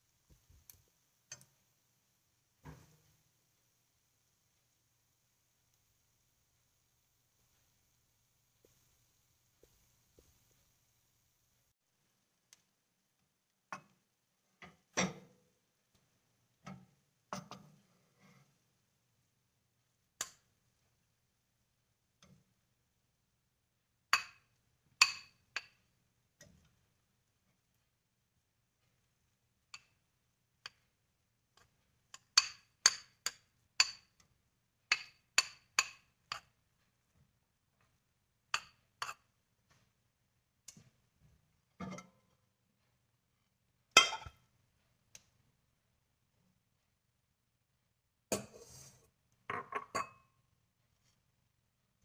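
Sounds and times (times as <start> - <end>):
spoon knocking and scraping pot: 2.6 - 3.2, 16.6 - 18.4, 25.0 - 26.7, 31.6 - 34.2, 34.9 - 37.2, 38.5 - 39.8, 43.9 - 44.4, 48.3 - 50.3.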